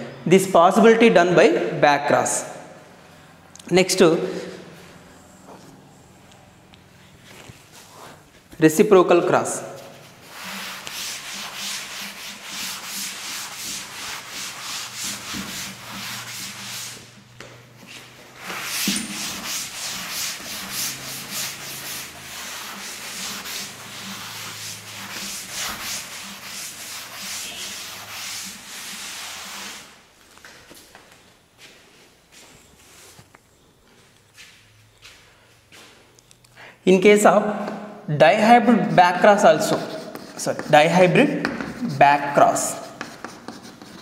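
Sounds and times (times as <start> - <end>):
duster rubbing blackboard: 9.8 - 17.3, 17.9 - 30.1, 38.3 - 44.0.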